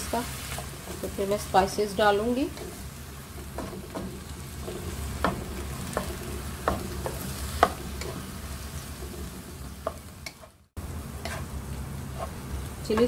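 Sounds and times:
meat frying sizzle: 0.0 - 13.0
wooden spatula scraping a wok: 0.1 - 13.0
spatula tapping pan: 3.4 - 8.3, 9.8 - 10.6.

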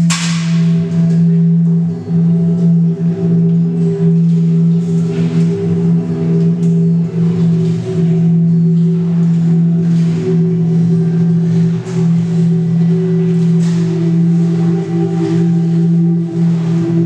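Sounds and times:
low drone of held tones: 0.0 - 17.0.

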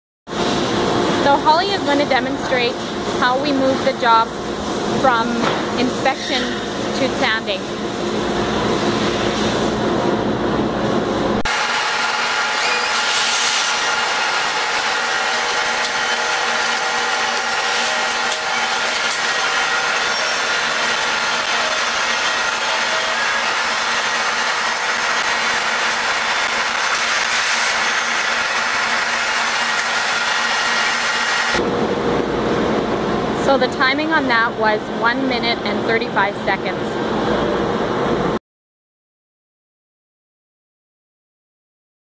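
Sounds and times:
woodworking machinery din: 11.5 - 31.6.

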